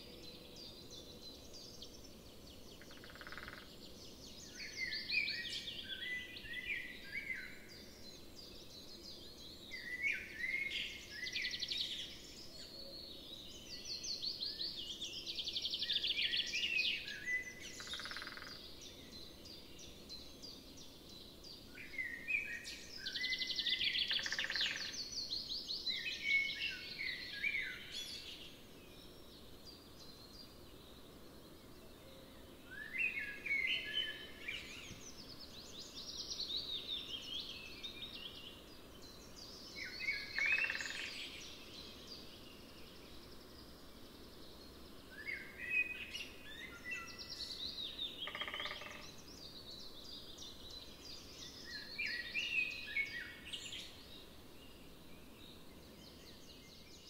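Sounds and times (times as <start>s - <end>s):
faint outdoor background noise: 0.0s - 57.0s
songbird trilling: 2.8s - 3.7s, 17.8s - 18.6s, 23.3s - 25.0s, 39.8s - 41.2s, 48.2s - 49.1s.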